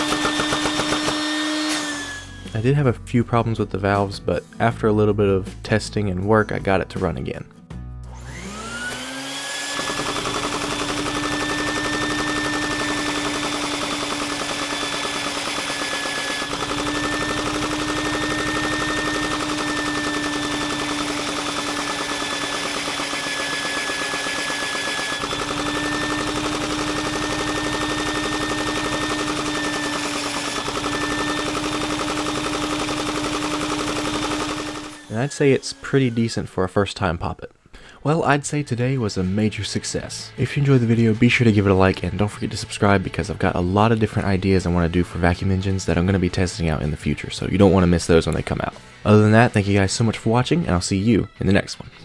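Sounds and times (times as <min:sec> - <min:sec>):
vacuum cleaner motor whine: 0:00.0 - 0:02.5, 0:08.1 - 0:36.4
model engine rapid clatter: 0:09.8 - 0:35.0.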